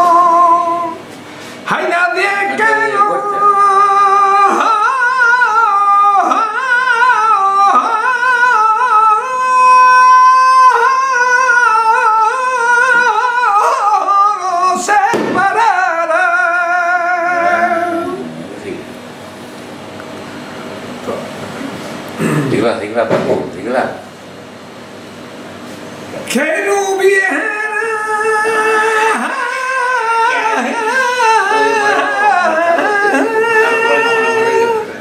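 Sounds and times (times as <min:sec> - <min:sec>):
man singing flamenco: 0:00.0 - 0:01.0, 0:01.7 - 0:18.2, 0:26.5 - 0:34.9.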